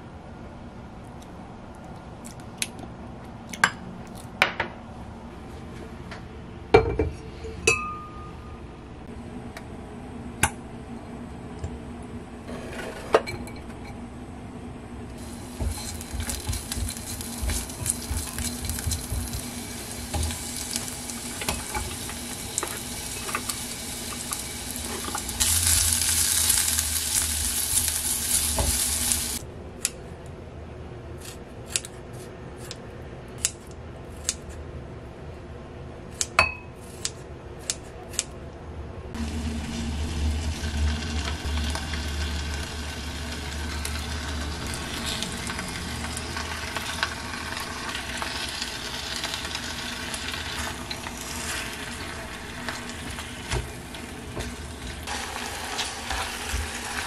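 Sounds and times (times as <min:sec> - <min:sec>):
garlic sizzling in a pot: 0:15.2 - 0:29.4, 0:39.2 - 0:57.0.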